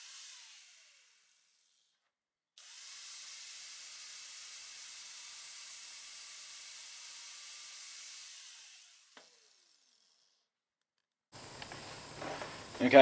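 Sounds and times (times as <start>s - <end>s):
angle grinder cutting hose: 0.0s - 2.0s, 2.6s - 10.6s.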